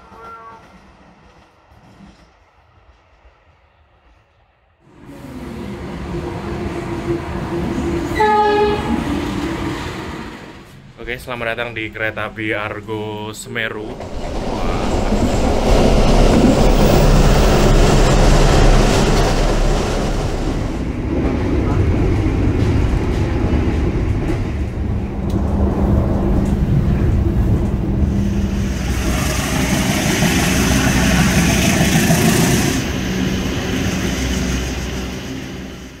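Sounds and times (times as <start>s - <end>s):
train rumbling: 0.0s - 36.0s
low hum: 13.7s - 21.0s.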